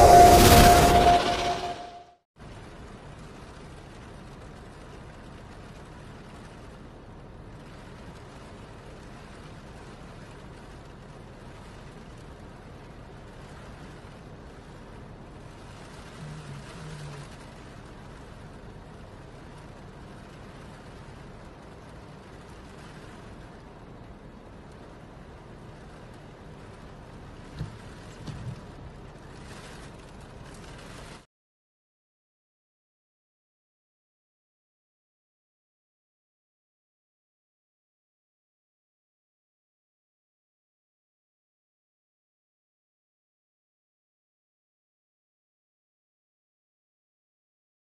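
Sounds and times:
short loud low sound: 0:00.0 - 0:02.2
storm wind: 0:00.0 - 0:31.2
water surging through street: 0:02.4 - 0:31.3.

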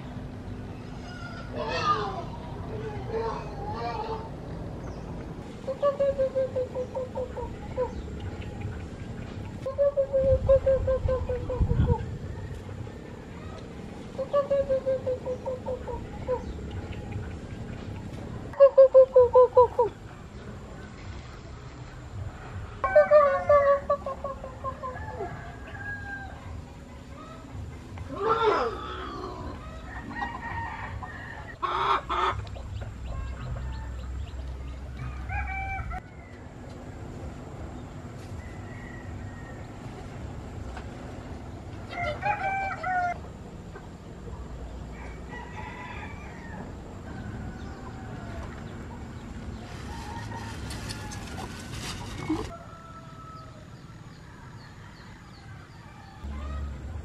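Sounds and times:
small birds chirping: 0:00.0 - 0:22.4
chickens squawking and clucking: 0:00.6 - 0:17.2, 0:18.4 - 0:36.4, 0:41.8 - 0:57.0
rustling: 0:49.5 - 0:52.6.

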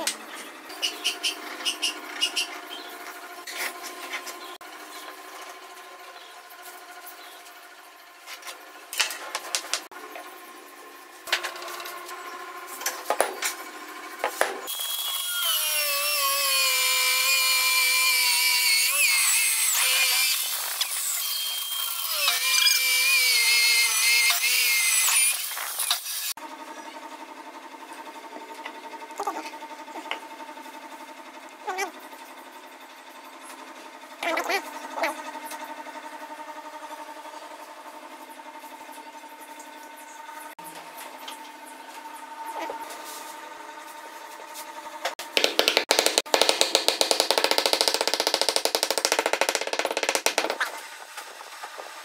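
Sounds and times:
power drill boring into wood: 0:14.7 - 0:26.3, 0:45.8 - 0:50.7
hand tools knocking on wood: 0:45.3 - 0:50.7.

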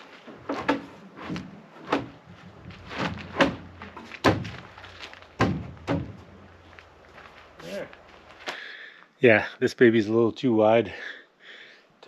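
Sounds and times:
wooden boards knocking: 0:00.4 - 0:06.3.

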